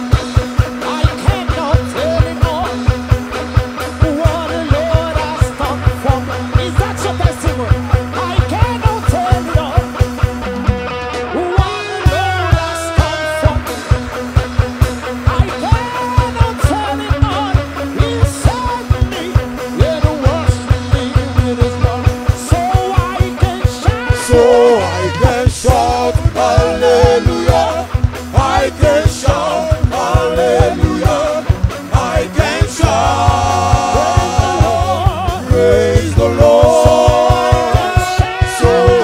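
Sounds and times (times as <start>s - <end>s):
bass line: 0.0s - 39.0s
fast drumbeat: 0.0s - 39.0s
person singing: 15.2s - 39.0s.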